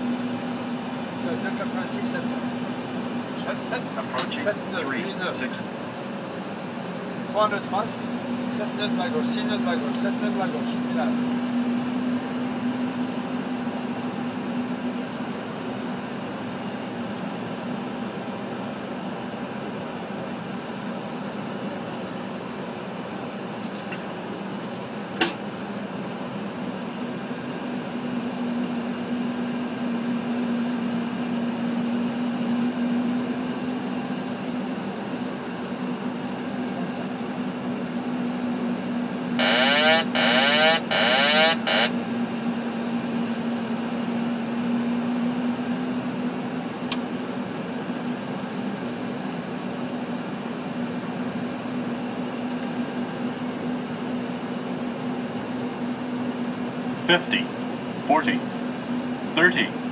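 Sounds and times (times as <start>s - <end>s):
cockpit air-conditioning noise: 0.0s - 59.9s
warbling alert: 39.4s - 41.9s.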